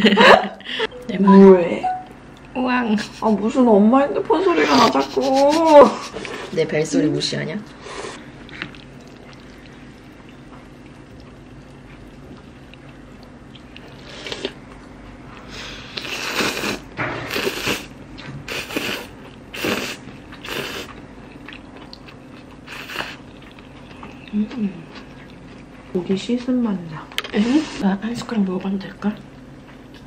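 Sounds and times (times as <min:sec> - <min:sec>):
low steady hum: 0:00.0 - 0:16.2
person slurping noodles: 0:15.5 - 0:17.9, 0:18.5 - 0:21.0, 0:22.7 - 0:23.2.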